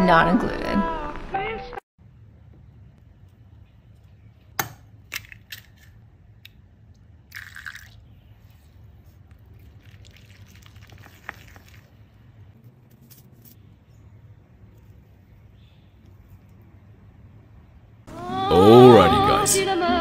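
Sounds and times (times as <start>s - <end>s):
liquid pouring: 7.3s - 8.0s, 9.3s - 12.2s.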